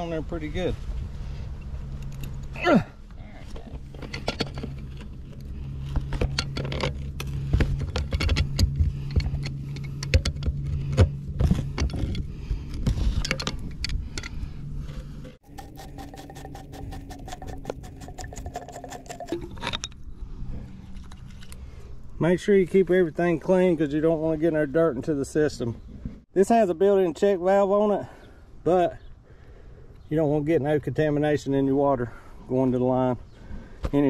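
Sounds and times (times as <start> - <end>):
low machine hum: 0.0 - 26.2
high hum with fast ticking: 3.9 - 21.8.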